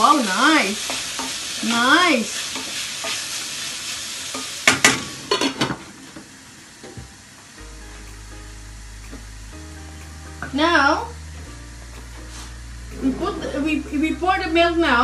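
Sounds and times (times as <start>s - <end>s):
food sizzling in metal pan: 0.0s - 15.0s.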